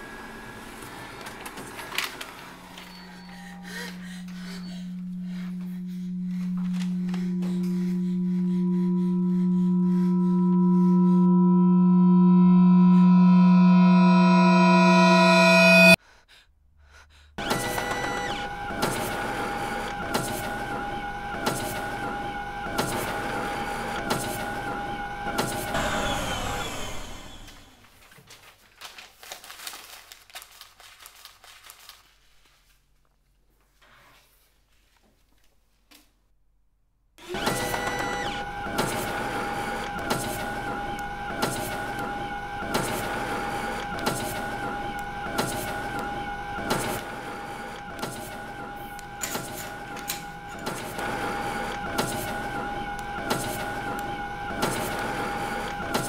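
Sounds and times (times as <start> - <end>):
photocopier whining: 0.0 - 11.1, 37.2 - 56.0
paper rustling and tapping: 27.9 - 33.7.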